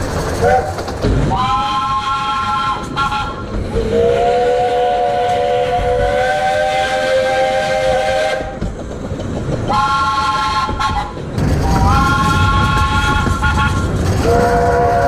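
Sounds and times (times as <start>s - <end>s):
steam locomotive chime whistle: 1.4s - 8.6s.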